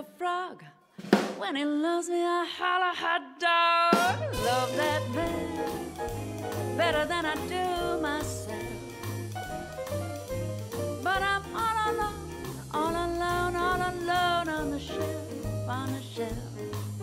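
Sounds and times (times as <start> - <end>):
person singing: 1.5 - 8.9, 11.0 - 16.9
big band with walking bass: 3.9 - 17.0
sparse drum accents: 4.0 - 17.0.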